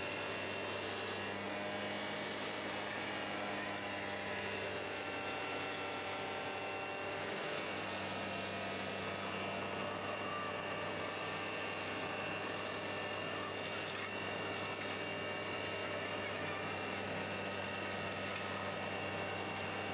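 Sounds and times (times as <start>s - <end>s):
vacuum truck engine drone: 0.0s - 19.9s
hose sucking soil and water: 10.6s - 19.9s.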